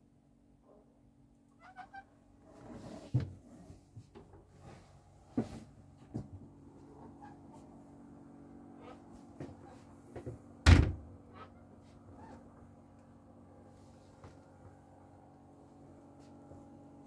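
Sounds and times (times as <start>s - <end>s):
knocks and bumps in boat cabin: 10.2s - 11.1s.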